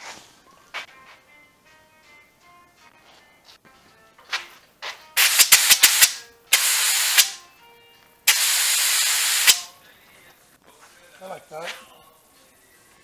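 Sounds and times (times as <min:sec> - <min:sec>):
paint spray gun hissing: 0:05.2 - 0:07.4, 0:08.3 - 0:09.7.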